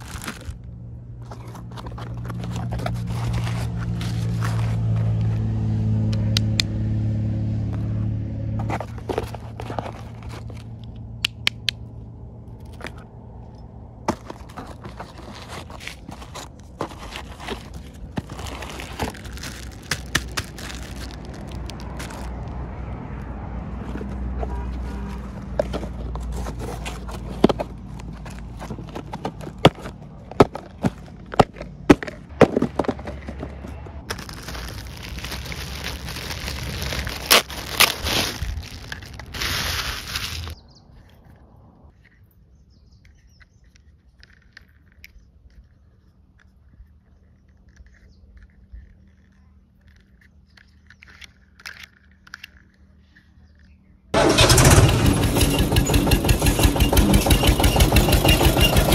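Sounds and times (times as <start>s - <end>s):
plastic packaging rustling: 0.0s - 5.2s, 8.6s - 10.8s, 14.1s - 22.8s, 23.8s - 40.6s
low steady rumble: 0.0s - 42.2s
cardboard box flaps rustling: 14.1s - 21.4s
plastic toy parts clicking: 43.0s - 53.8s.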